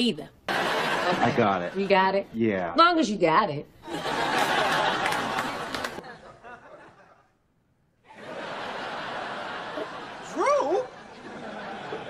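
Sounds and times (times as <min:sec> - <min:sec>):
studio audience laughing: 0:00.5 - 0:02.1, 0:03.8 - 0:07.4, 0:08.1 - 0:12.0.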